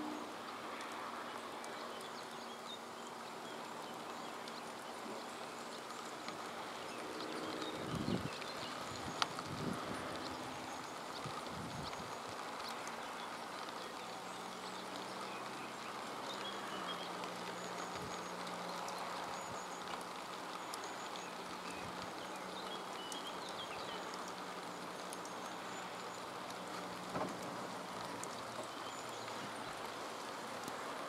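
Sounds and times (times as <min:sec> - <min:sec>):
steady rain on grass: 0:00.0 - 0:31.0.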